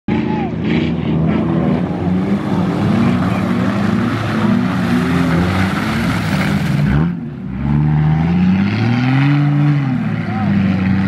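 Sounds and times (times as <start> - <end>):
off-road vehicle engine revving: 0.1 - 11.0.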